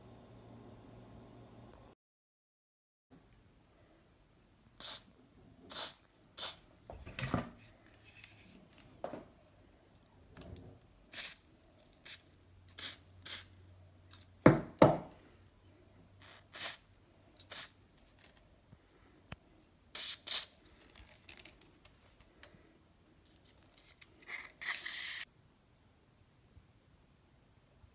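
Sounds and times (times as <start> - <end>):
aerosol spray hissing squirts: 4.8 - 5.1, 5.7 - 6.6, 11.1 - 11.4, 12.0 - 13.5, 16.2 - 17.8, 20.0 - 20.6, 24.6 - 25.3.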